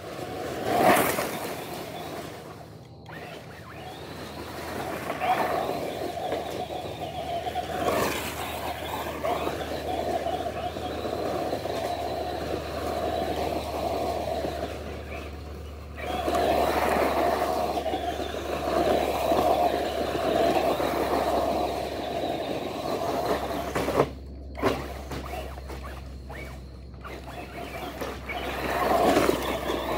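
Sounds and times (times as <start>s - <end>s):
rc car motor whining: 0.0s - 29.9s
tyres tearing through turf: 0.0s - 29.9s.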